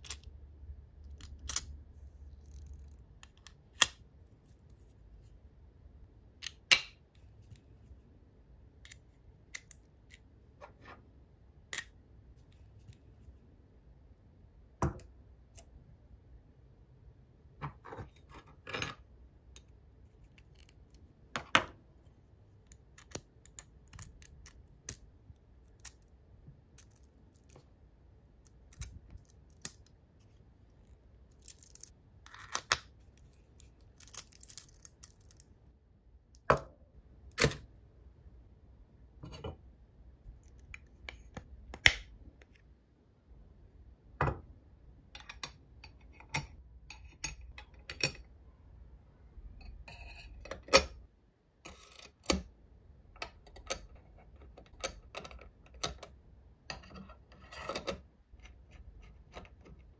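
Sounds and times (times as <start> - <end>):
metal parts clicking and clinking: 31.3 - 32.8.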